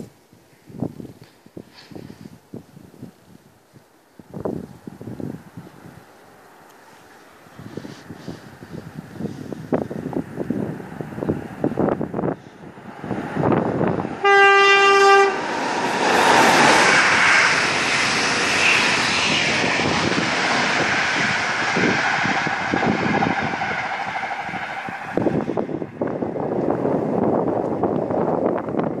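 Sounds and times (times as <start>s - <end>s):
wind noise on microphone: 0.0s - 6.1s, 7.4s - 29.0s
train rumbling past: 4.2s - 29.0s
train horn blast: 14.2s - 15.5s.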